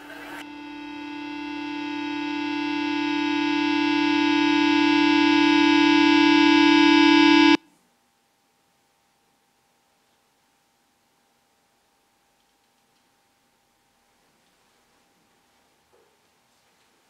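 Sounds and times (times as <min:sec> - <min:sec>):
sustained music chord: 0:00.4 - 0:07.6.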